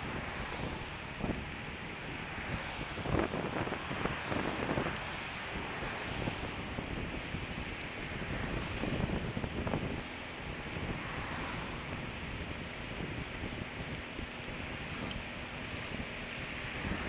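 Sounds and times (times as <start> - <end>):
wind buffeting microphone: 0.0 - 17.0.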